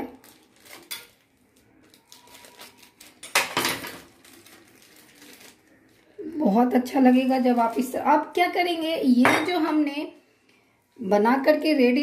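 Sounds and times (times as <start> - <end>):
plastic wrapper crinkling: 0.0 - 8.4.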